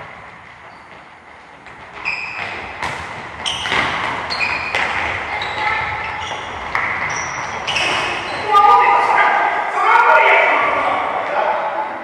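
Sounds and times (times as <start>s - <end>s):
balls kicked and bouncing: 0.0s - 8.4s
brief high squeaks: 2.0s - 2.6s, 7.1s - 8.5s.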